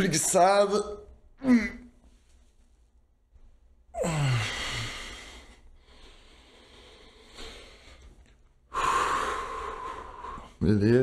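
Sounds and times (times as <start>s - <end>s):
man sighing: 4.0s - 5.3s
quiet breathing: 4.0s - 10.6s.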